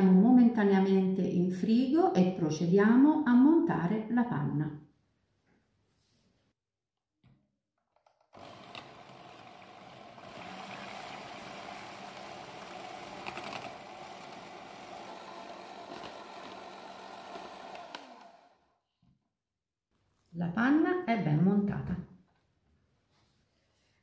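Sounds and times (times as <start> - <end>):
electric hand mixer running: 8.3 - 18.8.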